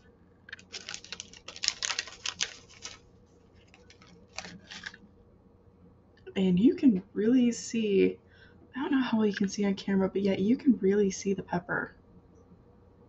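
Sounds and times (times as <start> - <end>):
plastic snack bag crinkling: 0.5 - 5.0.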